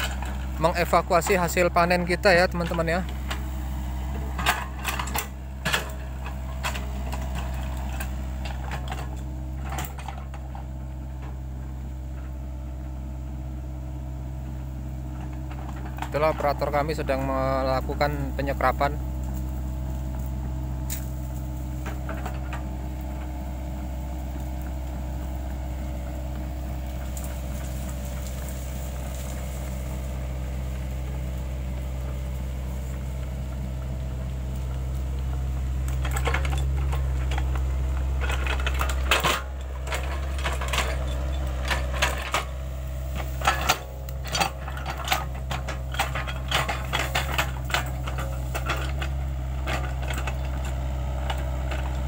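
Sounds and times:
excavator diesel engine: 0.0 - 52.0
sharp clanks and cracks: 4.3 - 10.6, 20.8 - 23.3, 35.8 - 52.0.

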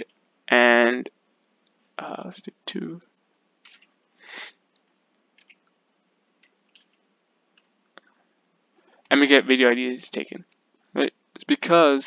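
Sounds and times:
soft hiss of noise: 0.0 - 12.0
keyboard keystrokes and clicks: 3.0 - 3.9, 4.7 - 5.8, 6.4 - 7.0.

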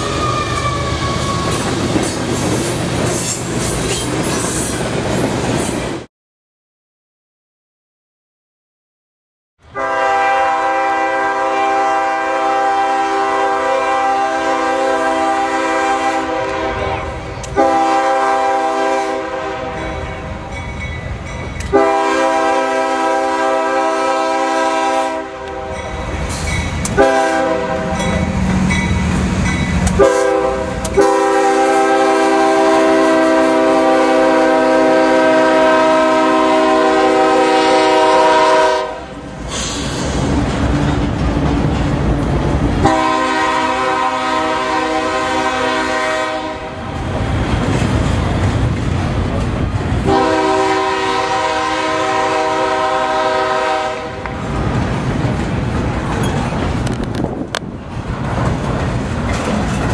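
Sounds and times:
locomotive and freight cars rumbling: 0.0 - 6.1, 9.6 - 59.9
locomotive air horn blasts: 9.6 - 20.0, 21.7 - 25.8, 26.9 - 28.1, 29.9 - 39.2, 42.8 - 46.9, 50.0 - 54.3.

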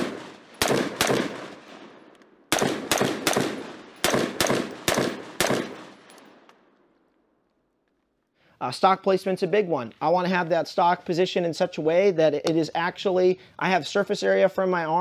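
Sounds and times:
rifle shots with echo: 0.0 - 6.7.

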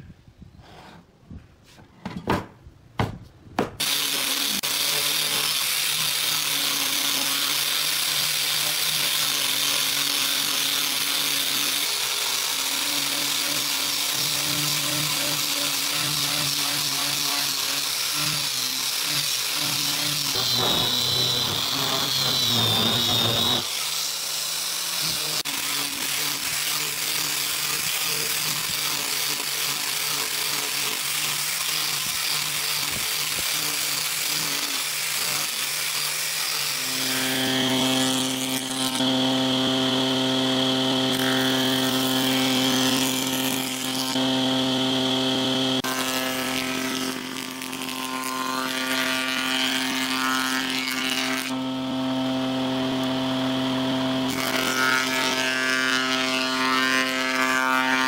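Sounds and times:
angle grinder sanding wood: 3.8 - 58.0
wavering whine and heavier grinding: 20.3 - 23.7.

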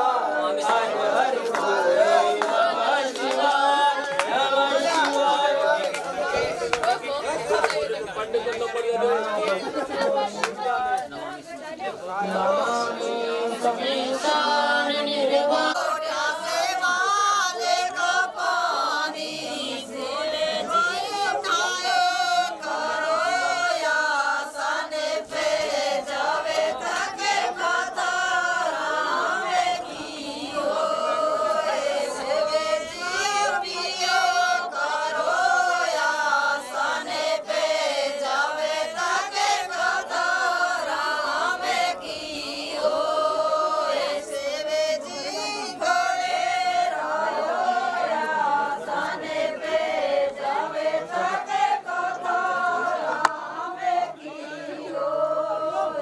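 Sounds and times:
women singing together: 0.0 - 56.0
sharp clicks or claps: 53.2 - 53.4.

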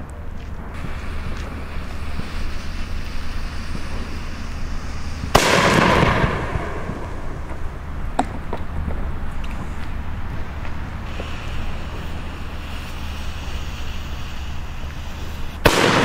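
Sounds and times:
firework launch: 0.4 - 16.0
hiss of sparks: 0.7 - 7.9, 10.4 - 16.0.

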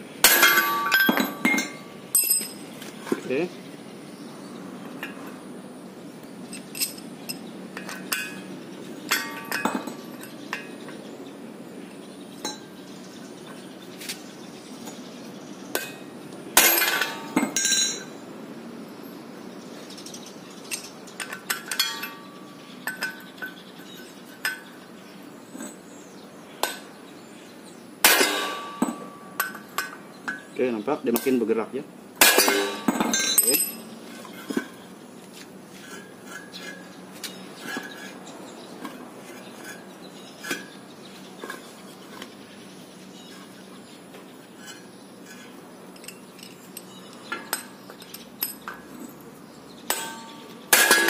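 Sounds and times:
hammer striking metal: 0.2 - 2.6, 28.0 - 30.0, 32.2 - 33.9, 49.9 - 51.0.

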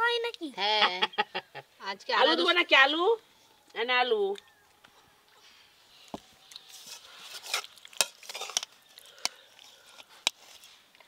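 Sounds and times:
spoon scraping a steel bowl: 6.7 - 8.8.

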